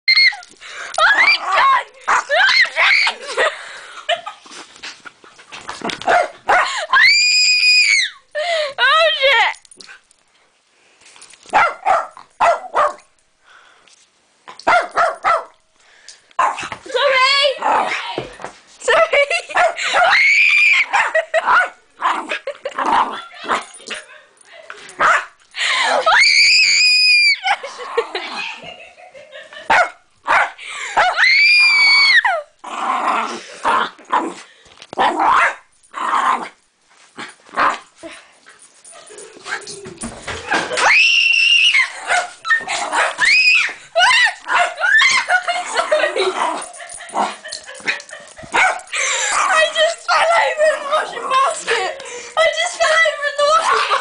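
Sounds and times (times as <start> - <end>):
small dog barking: 6.1 - 6.7, 11.5 - 13.0, 14.7 - 15.6, 29.7 - 30.6, 48.5 - 48.8.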